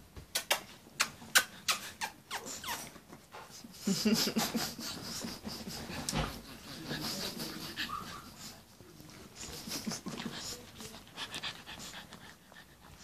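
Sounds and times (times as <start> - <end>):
puppies licking: 4.8 - 13.0.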